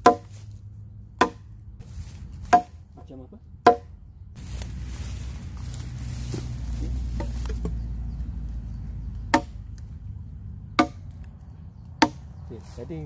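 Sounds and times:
machete chopping into log: 0.0s - 0.4s, 1.2s - 1.5s, 2.4s - 2.8s, 3.6s - 3.9s, 9.3s - 9.6s, 10.8s - 11.0s, 12.0s - 12.2s.

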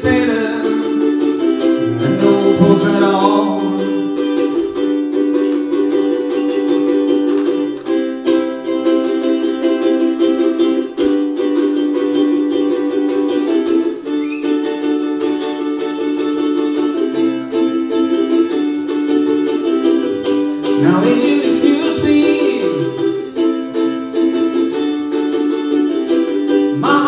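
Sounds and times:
ukulele strumming chords: 0.0s - 27.0s.

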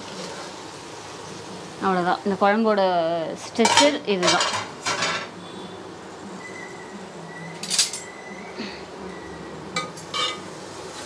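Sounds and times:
ladle clinking against pot: 9.8s - 10.4s.

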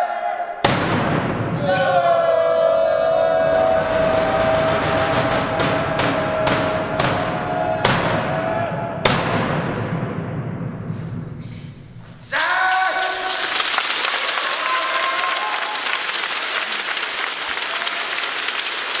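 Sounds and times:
audience applause: 3.0s - 7.9s, 12.4s - 19.0s
heavy drum stroke ringing: 3.6s - 8.3s
person shouting: 12.3s - 13.2s.

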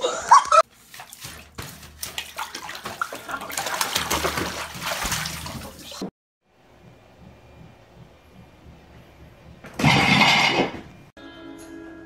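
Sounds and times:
bathwater splashing and sloshing: 0.4s - 6.1s.

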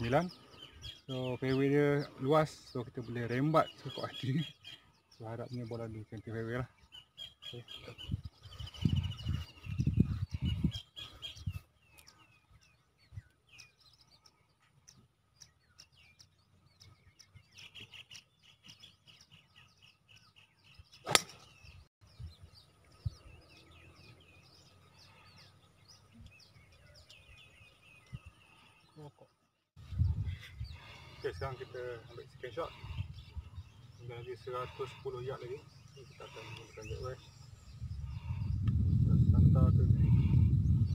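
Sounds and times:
birds chirping: 0.0s - 40.9s
low microphone rumbles: 8.0s - 10.8s, 29.8s - 30.8s, 37.4s - 40.9s
golf driver striking ball: 21.0s - 21.5s.

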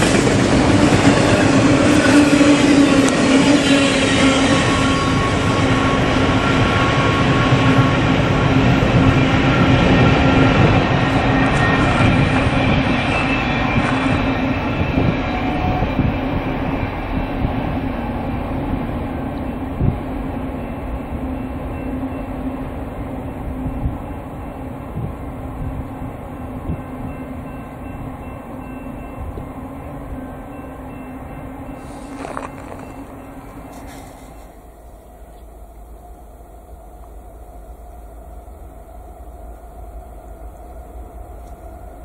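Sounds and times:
freight train rumbling on rails: 0.0s - 42.0s
train wheel clicks: 31.8s - 34.6s.

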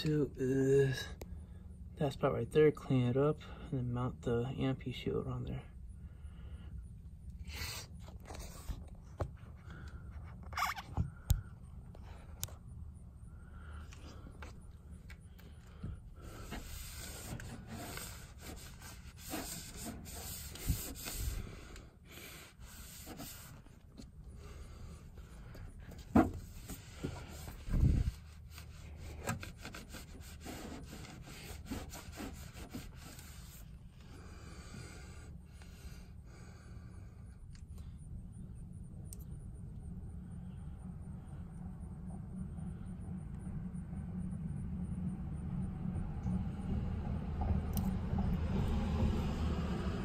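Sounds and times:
cloth rubbing on metal: 16.2s - 21.7s, 22.3s - 23.8s, 26.0s - 33.7s
heavy thump: 26.0s - 28.0s.

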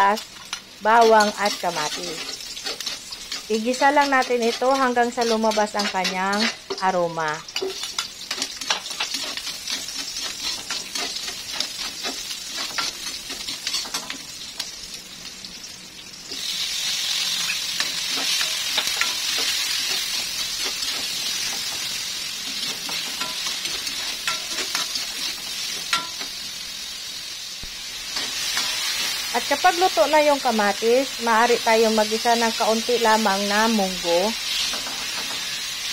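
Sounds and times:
food sizzling in hot oil: 0.0s - 35.9s
metal spatula scraping a wok: 0.2s - 14.3s, 16.3s - 26.4s, 28.0s - 29.5s, 34.4s - 35.9s.

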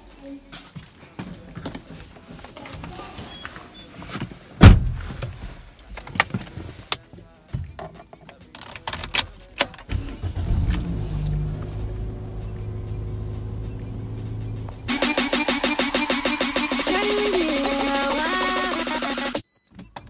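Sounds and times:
loud thump: 4.6s - 5.2s
car engine starting and idling: 9.1s - 19.4s.

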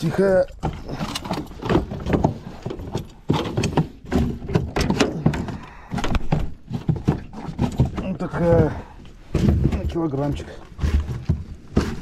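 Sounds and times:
fish thumping against metal hull: 0.6s - 9.8s.

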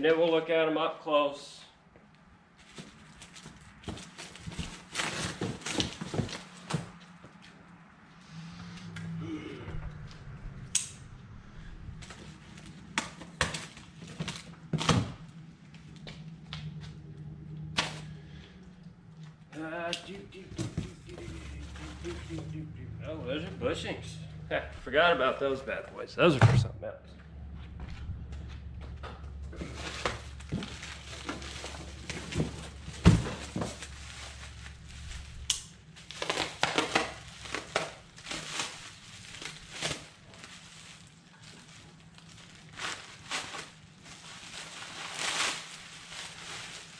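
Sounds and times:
cardboard boxes knocking and rustling: 2.7s - 7.0s, 29.5s - 34.2s
low steady rumble: 8.1s - 36.3s
plastic packaging crinkling: 29.6s - 46.9s.

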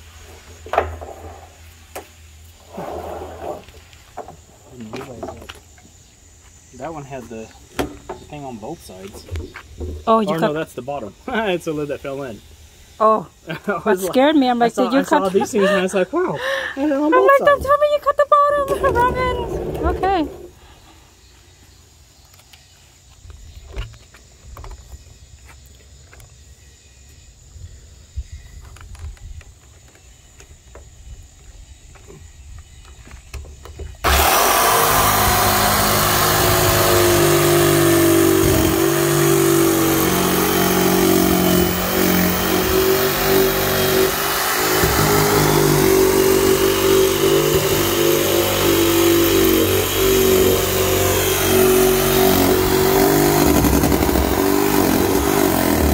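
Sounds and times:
power saw cutting plastic: 34.0s - 55.9s.

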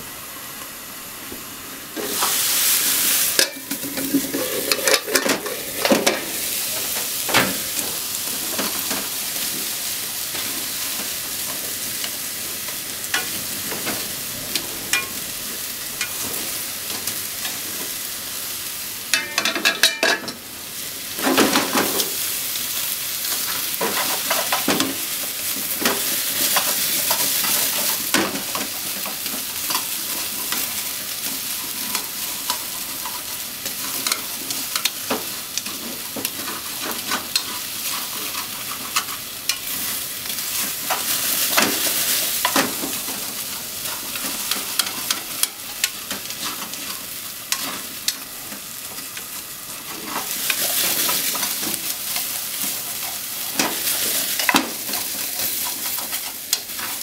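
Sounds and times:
potatoes sizzling in frying pan: 0.0s - 57.0s
chopsticks clicking against pan: 43.9s - 48.3s.

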